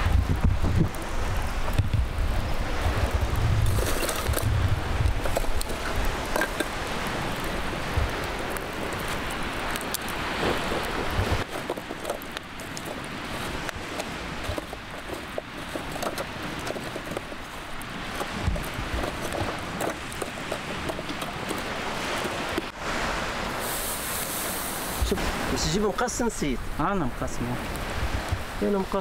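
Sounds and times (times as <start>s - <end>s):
charcoal fire crackling and popping: 0.0s - 22.8s, 23.5s - 29.0s
wind rumbling on microphone: 0.0s - 29.0s.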